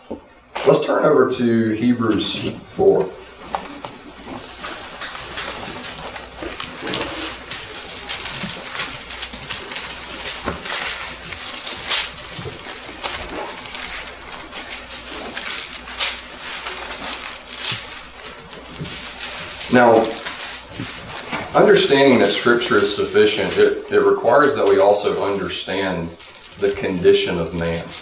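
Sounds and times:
thin paper pages rustling: 0:02.0 - 0:28.0.

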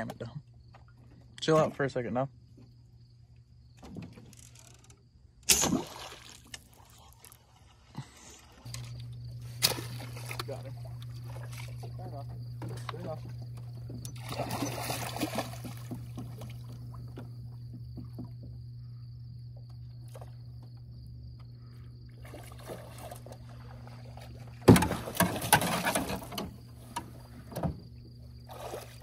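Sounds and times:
boat motor humming: 0:08.5 - 0:29.0
fish splashing and knocking: 0:08.7 - 0:18.7, 0:22.2 - 0:27.8.

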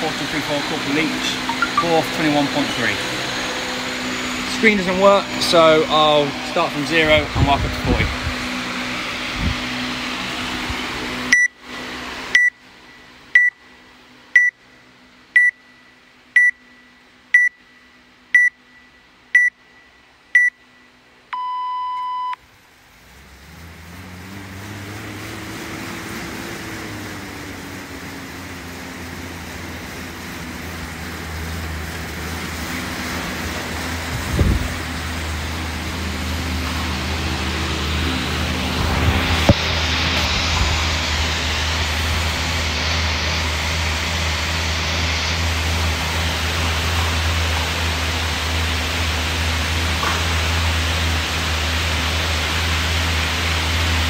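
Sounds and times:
air bike fan whirring: 0:00.0 - 0:54.0
longer lower start tone: 0:00.0 - 0:54.0
short high timer beeps: 0:01.5 - 0:01.9, 0:11.3 - 0:11.5, 0:13.4 - 0:13.6, 0:14.4 - 0:14.6, 0:15.4 - 0:17.6, 0:18.4 - 0:20.6, 0:21.4 - 0:22.4.

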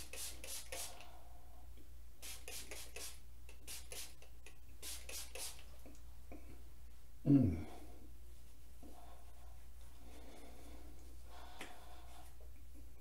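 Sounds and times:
spray bottle hissing puffs: 0:00.0 - 0:01.1, 0:02.2 - 0:05.7.

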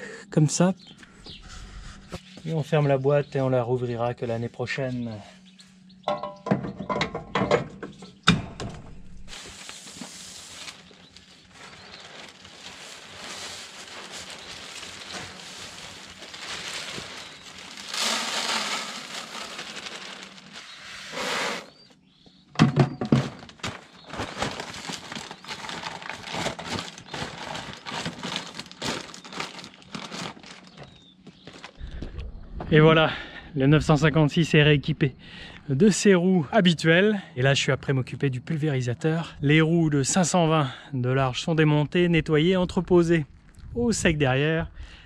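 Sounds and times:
plastic bag crackling: 0:09.2 - 0:21.8, 0:23.3 - 0:32.0
seeds pouring into bucket: 0:09.3 - 0:21.8, 0:24.0 - 0:30.8.

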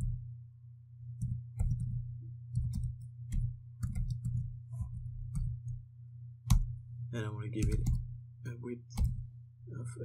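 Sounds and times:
steady low hum: 0:00.0 - 0:10.0
keyboard typing: 0:01.1 - 0:05.8, 0:06.4 - 0:06.7, 0:07.6 - 0:08.0, 0:09.0 - 0:09.3.

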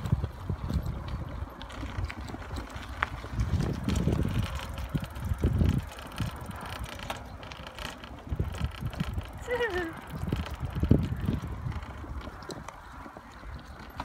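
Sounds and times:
wind buffeting microphone: 0:00.0 - 0:14.0
bicycle freewheel ticking: 0:03.0 - 0:12.0.

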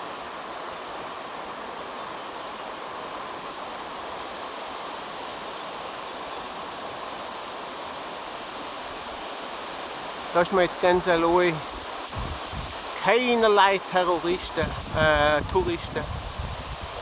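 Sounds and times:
mountain stream rushing: 0:00.0 - 0:17.0.

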